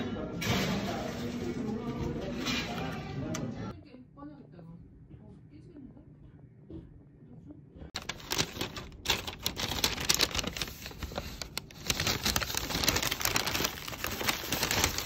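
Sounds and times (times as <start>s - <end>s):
paper bag rustling: 8.0s - 15.0s
plastic wrapping crackling: 8.0s - 15.0s.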